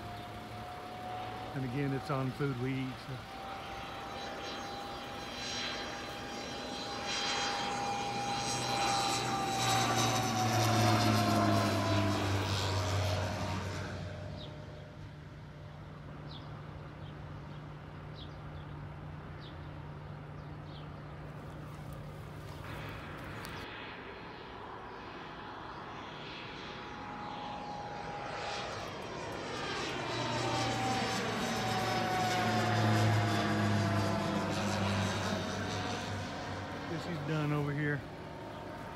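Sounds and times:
propeller airplane passing overhead: 0.0 - 38.9.

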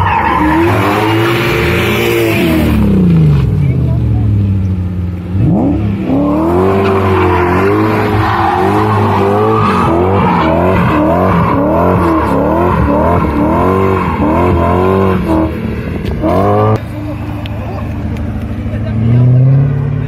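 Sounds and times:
tyres squealing on asphalt: 0.0 - 2.7, 6.0 - 15.6
car engine revving hard: 0.0 - 3.3, 5.3 - 15.6, 16.2 - 16.8.

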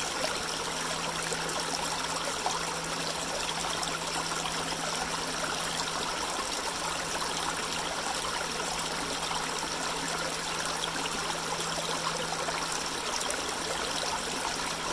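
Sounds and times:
creek trickling over rocks: 0.0 - 14.9.

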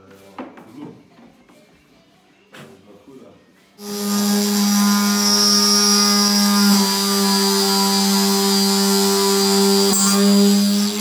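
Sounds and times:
rotary tool whining: 3.8 - 11.0.

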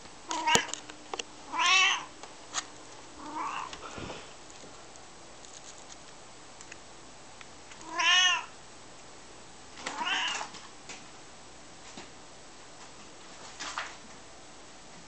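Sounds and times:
cat meowing: 1.5 - 2.1, 3.2 - 3.7, 7.8 - 8.5, 9.8 - 10.5.

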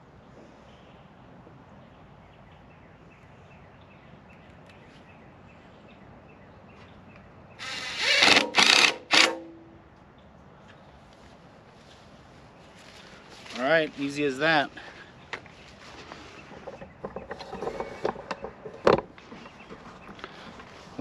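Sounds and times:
cordless drill driving screw: 7.6 - 9.4.

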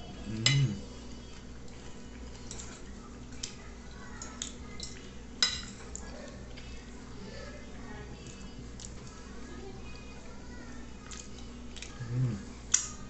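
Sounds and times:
person chewing food: 11.0 - 12.8.

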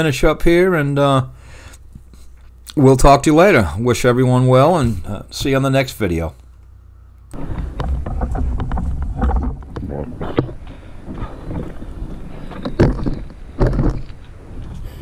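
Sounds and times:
loud thumps: 7.3 - 14.3.

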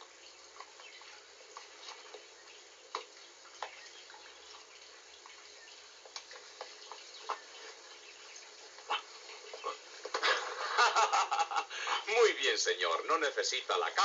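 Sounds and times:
faint steady hiss: 0.0 - 14.0
small clicks and rustles: 6.0 - 7.9.

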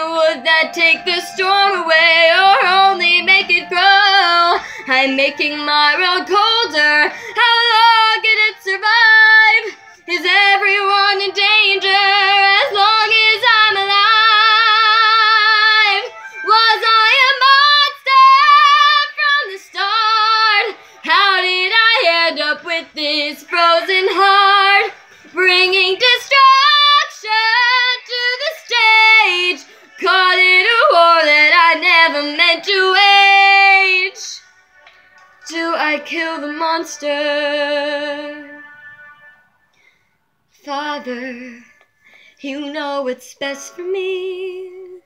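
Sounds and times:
singer breathing: 4.6 - 4.9, 7.1 - 7.4, 39.6 - 40.2, 41.6 - 42.4.

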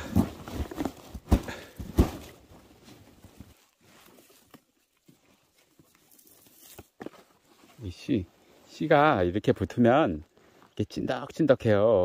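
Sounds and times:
dull thumps of branches: 0.0 - 3.6
branches rustling: 0.0 - 8.9.

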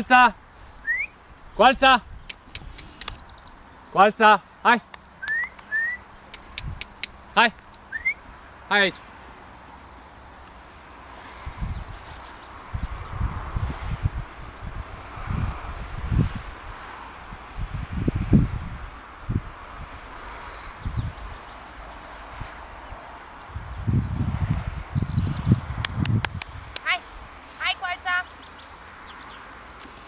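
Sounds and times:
crickets chirping: 0.0 - 30.0
wind rumble on microphone: 1.4 - 3.4, 6.5 - 7.1, 11.3 - 21.5, 22.2 - 27.4.

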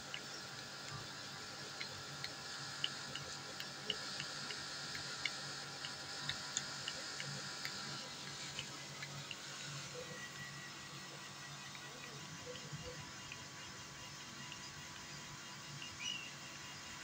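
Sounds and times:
cat lapping milk: 0.5 - 9.5.

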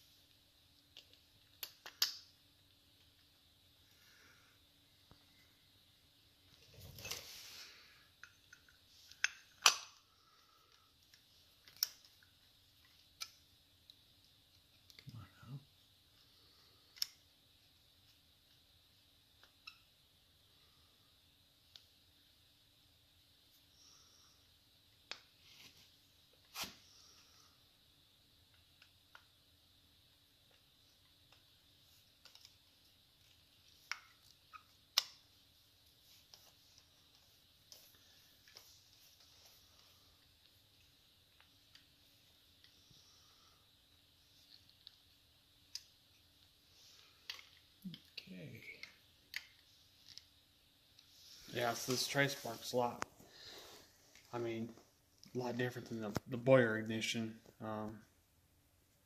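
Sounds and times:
light clicks and taps of tools: 16.9 - 17.3, 32.1 - 35.2.

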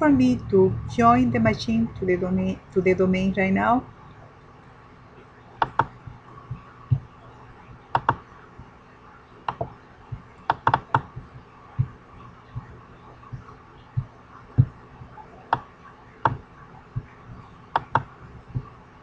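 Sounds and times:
faint steady hum: 0.0 - 19.0
computer mouse clicking: 5.6 - 6.0, 8.0 - 8.2, 10.5 - 11.1, 17.8 - 18.1
soft low taps: 5.6 - 7.1, 9.5 - 14.8.

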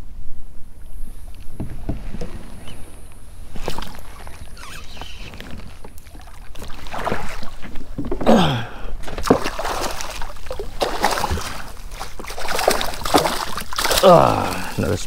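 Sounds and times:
fish thrashing and splashing: 3.5 - 14.9
person exclaiming: 14.0 - 14.8.

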